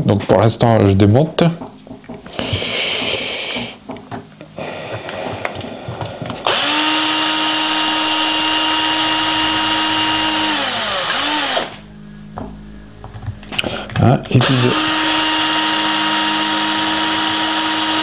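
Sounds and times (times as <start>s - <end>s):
electric screwdriver running: 6.4s - 11.8s, 14.4s - 18.0s.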